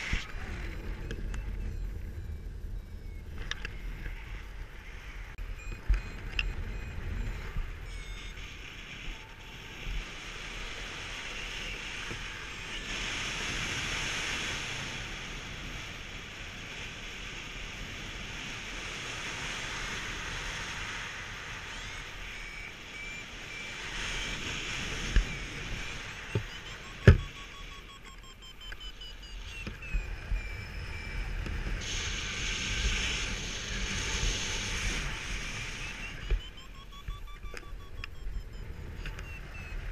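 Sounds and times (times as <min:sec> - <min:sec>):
variometer beeping: 0:00.0 - 0:12.9, 0:21.5 - 0:31.9, 0:32.8 - 0:39.9
wind rushing over microphone: 0:00.0 - 0:39.9.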